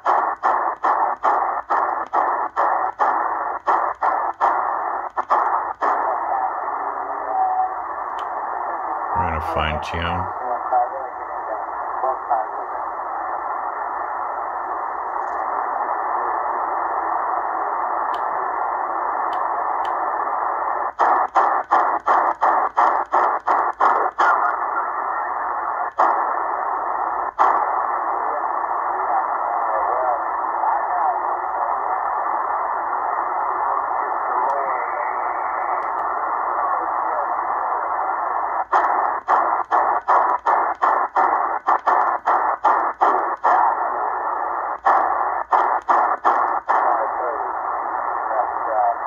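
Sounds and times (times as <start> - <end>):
radio tuning clicks: 0.0 - 10.3, 11.2 - 49.0
radio static hiss: 0.0 - 49.0.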